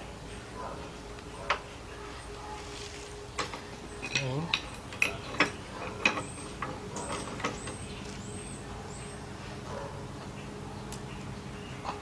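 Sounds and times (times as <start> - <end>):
light metal clicks and knocks: 3.4 - 7.9.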